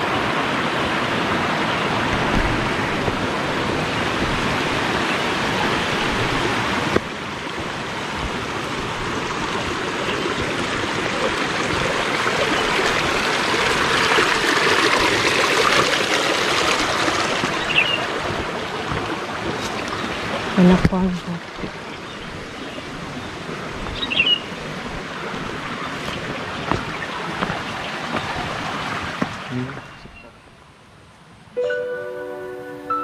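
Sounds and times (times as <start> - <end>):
stream flowing: 0.0 - 33.0.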